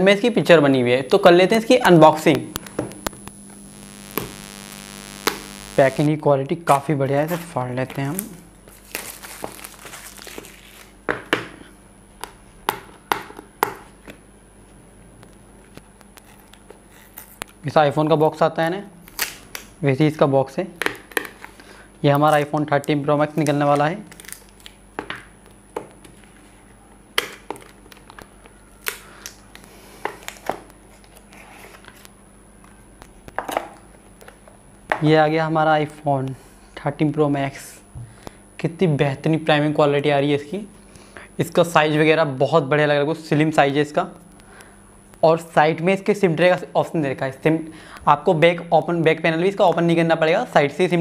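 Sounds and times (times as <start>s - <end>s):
plastic shrink-wrap tearing: 7.3s - 11.0s, 16.1s - 17.6s, 19.0s - 19.7s, 21.2s - 24.8s.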